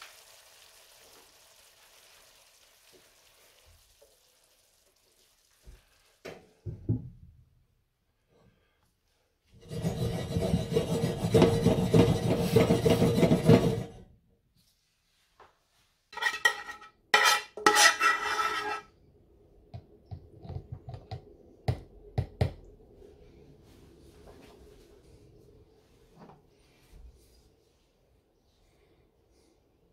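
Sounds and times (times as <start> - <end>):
cookware scraping: 9.6 - 14.0, 16.2 - 18.9.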